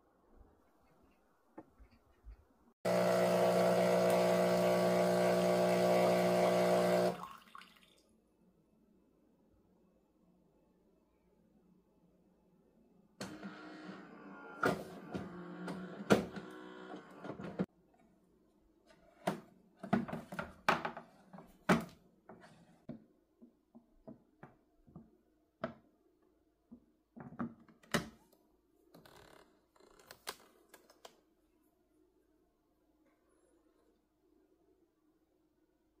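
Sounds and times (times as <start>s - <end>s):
espresso machine humming: 2.9s - 7.2s.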